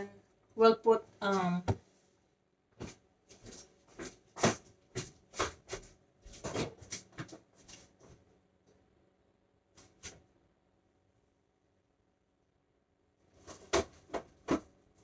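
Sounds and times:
kitchen items knocking and rustling: 0:02.8 - 0:08.3, 0:13.3 - 0:14.8.

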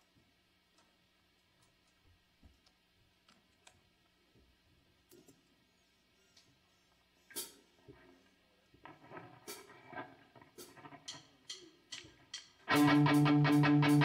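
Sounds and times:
drumsticks clicking count-in: 0:10.6 - 0:14.0
faint guitar notes: 0:12.7 - 0:14.0
rock band playing: 0:12.7 - 0:14.0.

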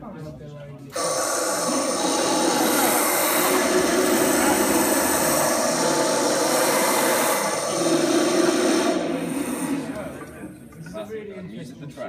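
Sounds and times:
dense electronic drone: 0:00.9 - 0:10.7
hiss: 0:01.0 - 0:10.5.

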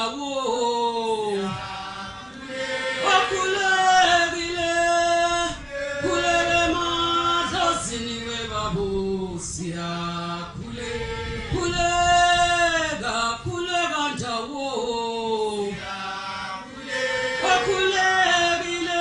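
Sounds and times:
group of voices chanting: 0:01.3 - 0:04.2, 0:10.6 - 0:12.6, 0:15.5 - 0:19.0.

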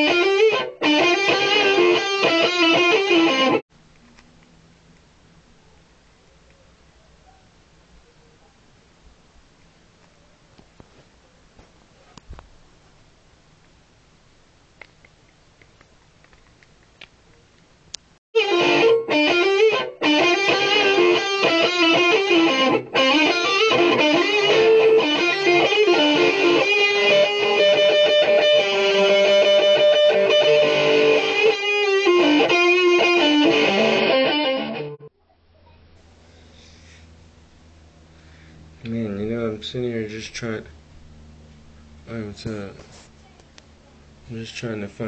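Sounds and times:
electric guitar lead: 0:00.0 - 0:03.6, 0:18.4 - 0:35.1.

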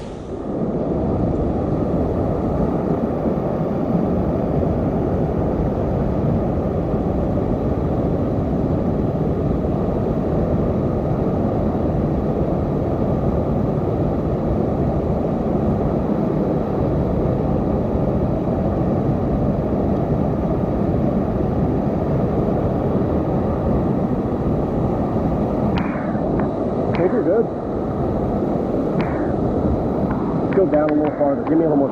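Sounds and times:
rapids rushing: 0:25.5 - 0:31.9.

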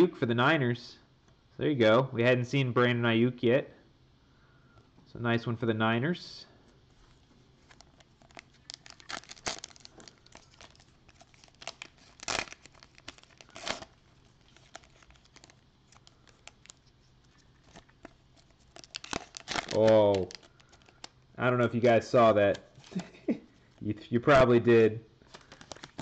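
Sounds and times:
foil pack crinkling and ripping: 0:07.6 - 0:21.2, 0:25.2 - 0:26.0.

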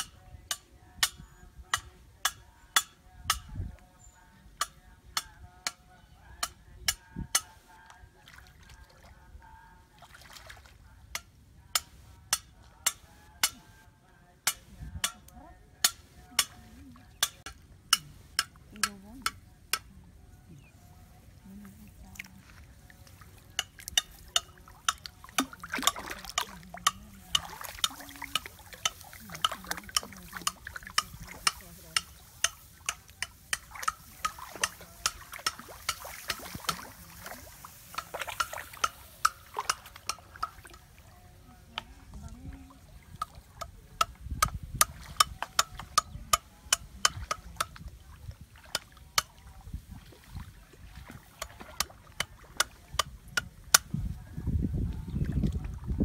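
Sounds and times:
water splashing and dripping: 0:10.0 - 0:10.8, 0:21.5 - 0:41.1, 0:46.8 - 0:53.6.

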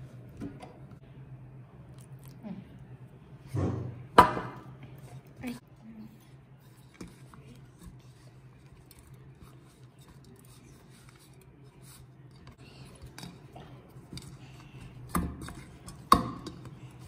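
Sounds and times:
dough squishing against steel bowl: 0:06.6 - 0:17.0.

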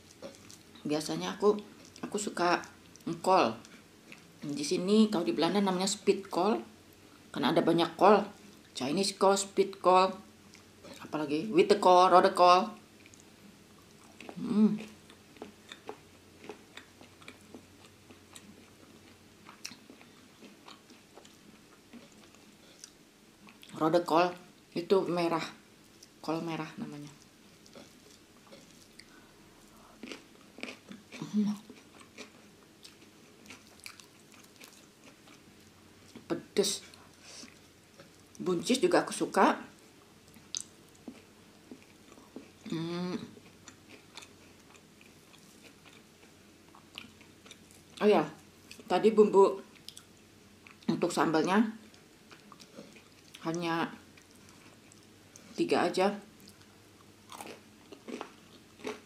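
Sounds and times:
person chewing with mouth clicks: 0:00.0 - 0:00.8, 0:01.7 - 0:04.6, 0:13.0 - 0:23.8, 0:27.2 - 0:38.4, 0:40.3 - 0:48.0, 0:49.7 - 0:50.9, 0:51.8 - 0:53.5, 0:56.4 - 0:59.0
wet mouth clicks: 0:40.5 - 0:40.7.

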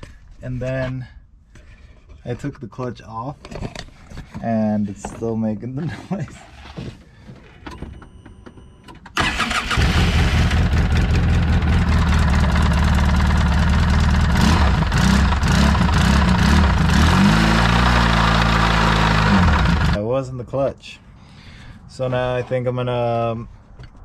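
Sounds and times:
engine running with rod knock: 0:10.3 - 0:20.0.

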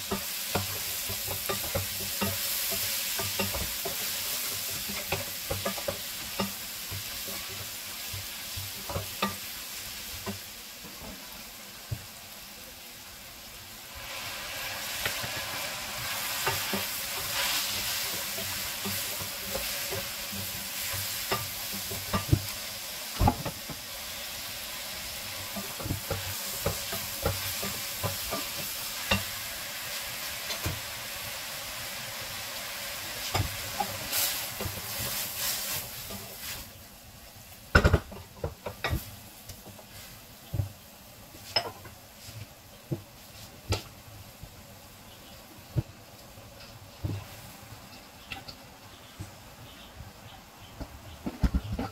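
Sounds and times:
spatula knocking and scraping pan: 0:00.0 - 0:11.2, 0:15.0 - 0:23.9, 0:25.3 - 0:29.4, 0:33.1 - 0:36.5, 0:37.7 - 0:40.8
vegetables sizzling in a pan: 0:00.0 - 0:51.9.

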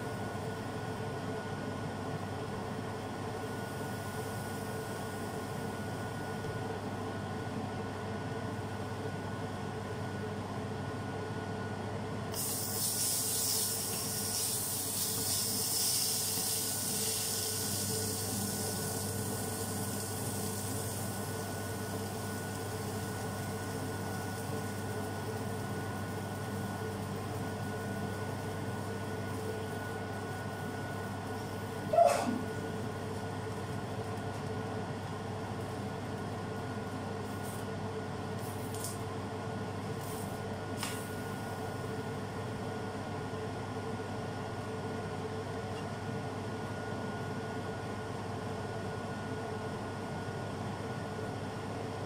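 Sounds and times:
steady hum: 0:00.0 - 0:48.6
batter sizzling in frying pan: 0:12.4 - 0:31.6.

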